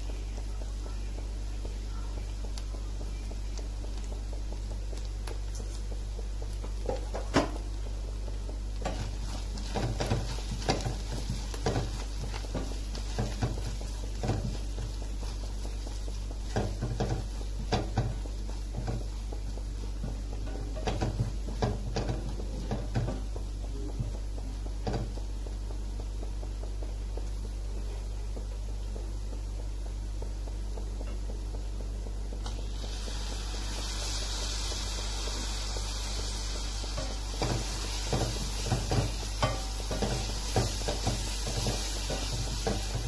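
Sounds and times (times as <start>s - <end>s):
oil sizzling: 0.0s - 43.0s
knocks on pan: 8.8s - 14.9s, 20.0s - 23.4s, 24.8s - 25.2s, 37.0s - 43.0s.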